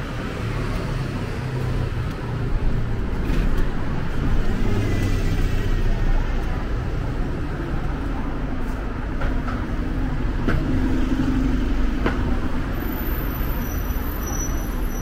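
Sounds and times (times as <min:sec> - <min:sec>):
rumble of passing cars: 0:00.0 - 0:15.0.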